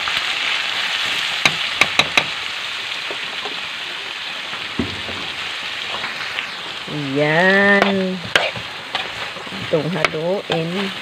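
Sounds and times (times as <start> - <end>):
frying sizzle: 0.0 - 11.0
dull knock: 4.8 - 5.3.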